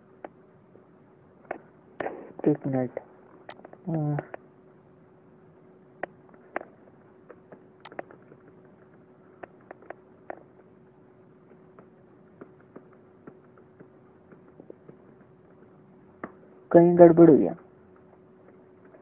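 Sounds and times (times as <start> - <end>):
faint steady hum: 0.0 - 19.0
keyboard and mouse clicks: 7.3 - 10.4.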